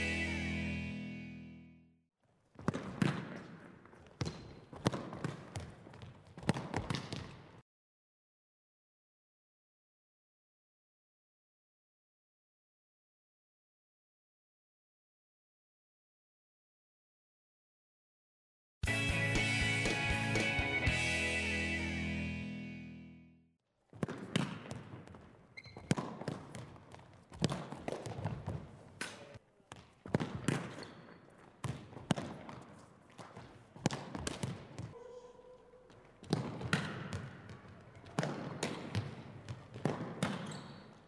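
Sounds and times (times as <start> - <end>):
balls kicked and bouncing on wooden floor: 2.5 - 7.6, 23.9 - 35.0, 35.9 - 41.0.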